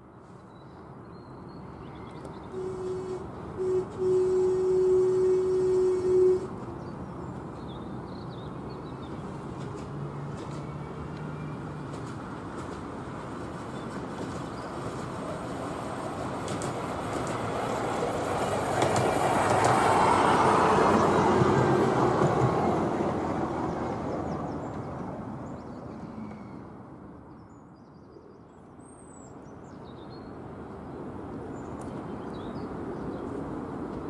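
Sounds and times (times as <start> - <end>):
miniature train wheels on rail: 13.5 - 20.2.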